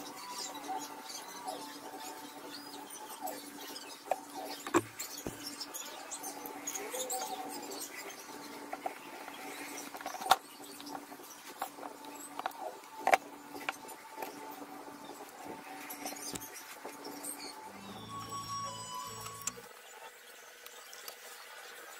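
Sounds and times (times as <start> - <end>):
low hum: 17.7 - 19.7.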